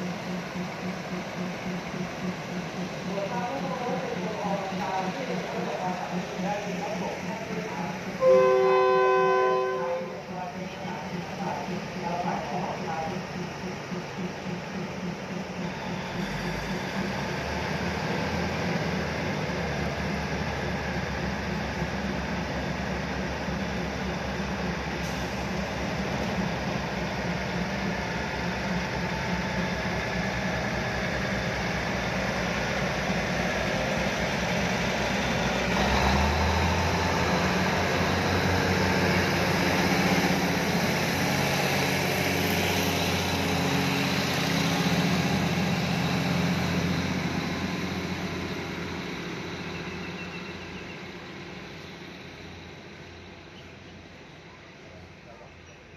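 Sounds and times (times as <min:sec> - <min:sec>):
diesel train engines running: 0:00.0 - 0:55.9.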